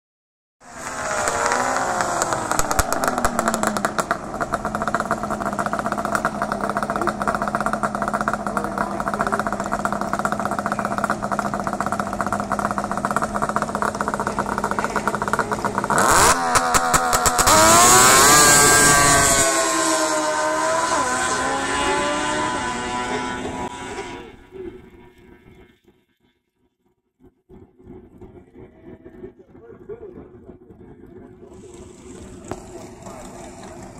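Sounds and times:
racing engines accelerating: 0:00.6 - 0:25.6.

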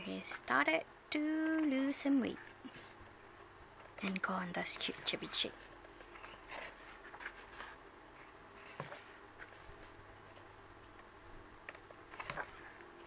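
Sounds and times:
book pages rustling: 0:03.9 - 0:11.1, 0:11.7 - 0:12.9.

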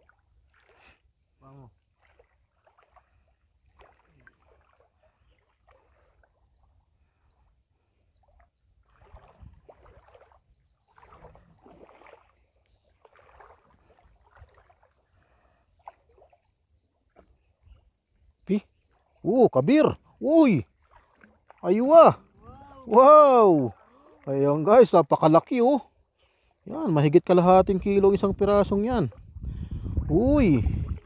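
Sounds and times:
water sloshing and splashing: 0:00.0 - 0:07.1, 0:08.2 - 0:17.9, 0:18.8 - 0:26.6
wind rumble on microphone: 0:09.0 - 0:09.8, 0:27.5 - 0:31.0.

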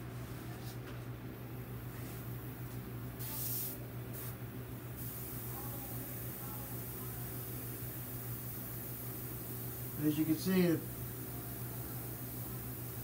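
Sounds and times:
airbrush spraying in hissing bursts: 0:03.1 - 0:13.0.

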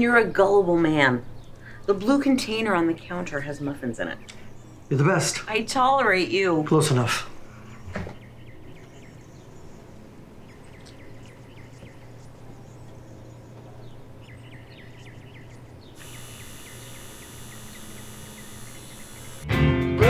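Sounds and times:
low steady hum: 0:00.0 - 0:19.4
faint chirping: 0:07.5 - 0:19.5.

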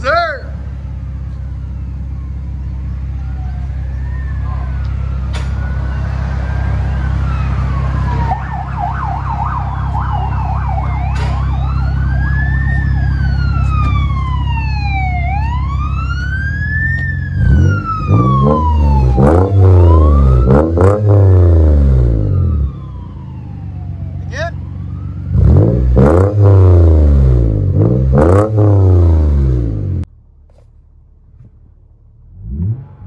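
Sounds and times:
car engine idling and revving: 0:00.0 - 0:33.0
siren wailing and yelping: 0:00.8 - 0:26.8.

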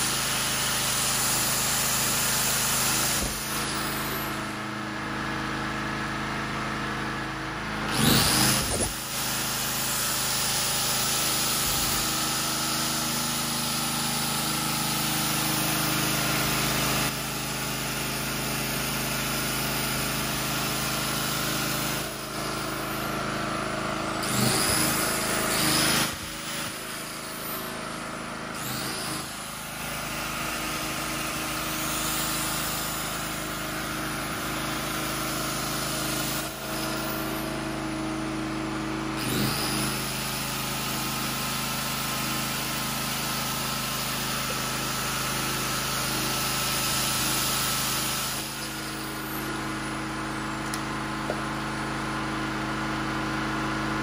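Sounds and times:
generator engine running: 0:00.0 - 0:54.0.

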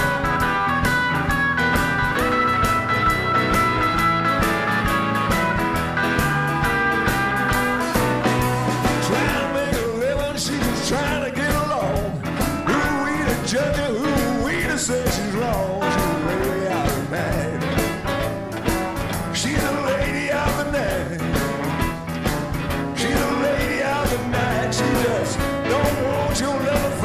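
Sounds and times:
band playing a song: 0:00.0 - 0:27.0
person singing: 0:06.6 - 0:17.9, 0:19.3 - 0:21.6, 0:23.0 - 0:27.0.

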